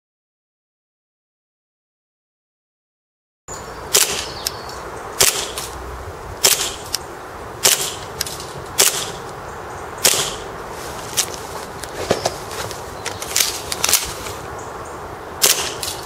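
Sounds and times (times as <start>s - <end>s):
airsoft pistol shots: 3.9s - 4.4s, 5.2s - 5.7s, 6.4s - 7.0s, 7.6s - 8.1s, 8.8s - 9.2s, 10.0s - 10.5s, 15.4s - 16.0s.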